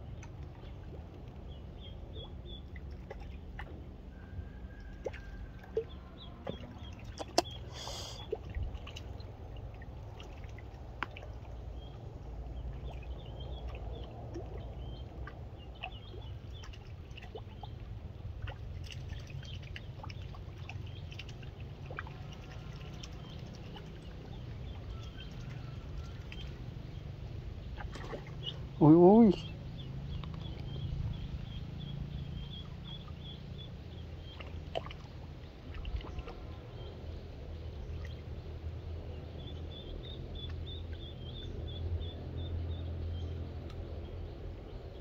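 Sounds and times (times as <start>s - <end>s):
small splashes on water: 0.0s - 4.0s, 4.8s - 27.0s, 27.6s - 28.8s, 32.3s - 36.9s
low steady rumble: 0.0s - 45.0s.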